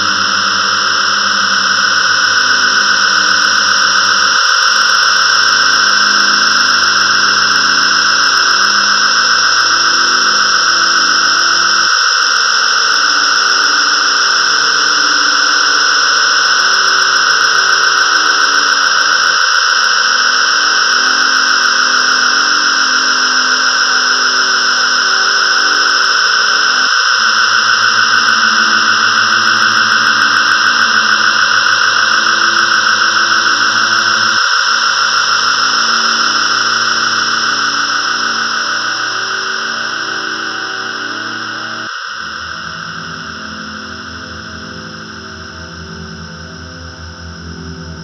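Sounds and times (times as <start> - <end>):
held low synth chords: 39.0 - 48.0.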